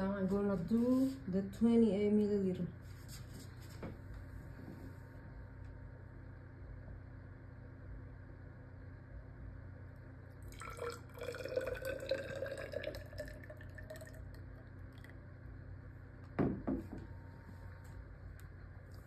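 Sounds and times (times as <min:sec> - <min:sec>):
water trickling into cylinder: 0:10.4 - 0:15.3
glass cup knocking on wooden table: 0:16.4 - 0:17.1.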